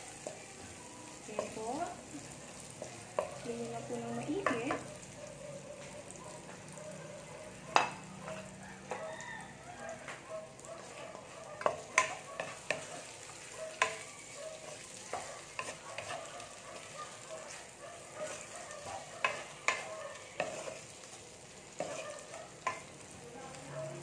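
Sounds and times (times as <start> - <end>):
vegetables sizzling in oil: 0.0 - 24.0
wooden spatula scraping pan: 7.8 - 9.0, 10.0 - 23.0.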